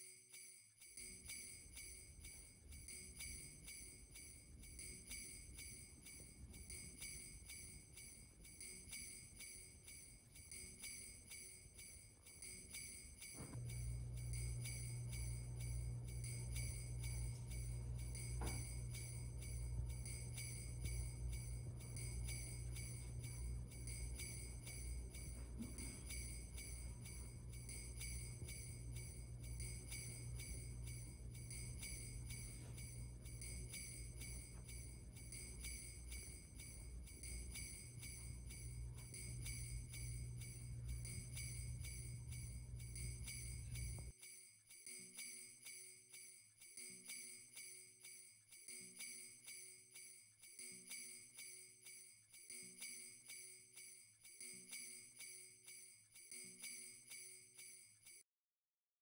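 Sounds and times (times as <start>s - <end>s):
sleigh bells shaken: 0.0s - 58.2s
low steady hum: 12.4s - 44.1s.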